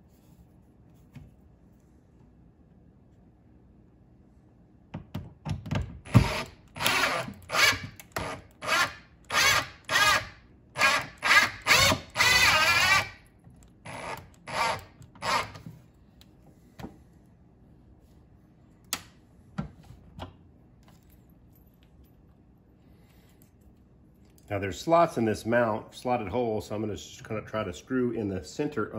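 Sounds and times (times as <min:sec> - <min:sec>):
cordless drill: 0:06.1 - 0:13.2, 0:13.8 - 0:15.6.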